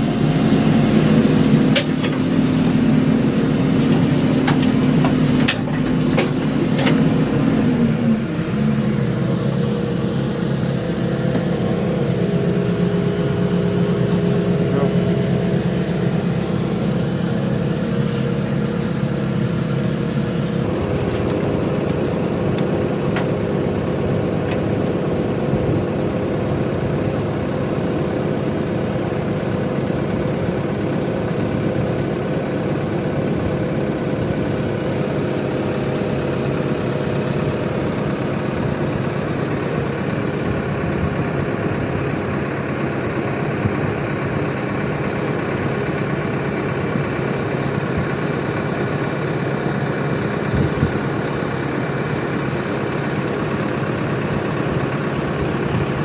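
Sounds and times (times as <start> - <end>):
diesel engine idling: 0.0 - 56.0.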